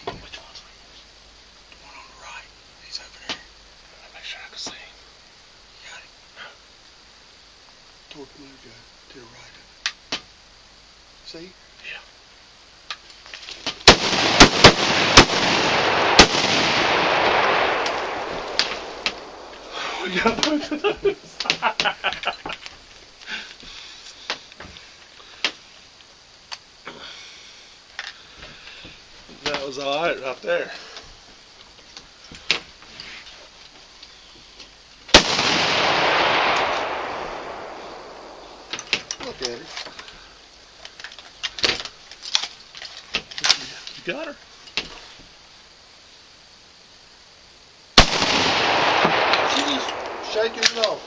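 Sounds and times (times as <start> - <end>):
shotgun shots: 13.8 - 20.6, 35.1 - 39.4, 48.0 - 51.0
rushing noise: 14.2 - 21.4, 35.4 - 39.4.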